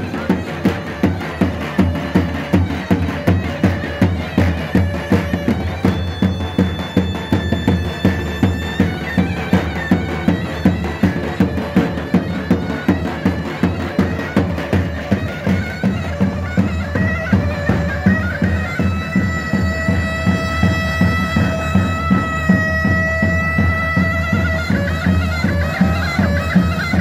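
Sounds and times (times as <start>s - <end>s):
davul drum beat: 0.0s - 27.0s
zurna playing dance tune: 0.0s - 27.0s.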